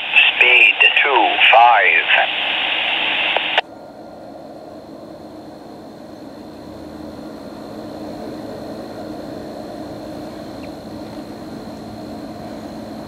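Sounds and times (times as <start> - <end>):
scanner radio hiss: 0.0 - 3.6
diesel locomotive drone: 0.0 - 13.0.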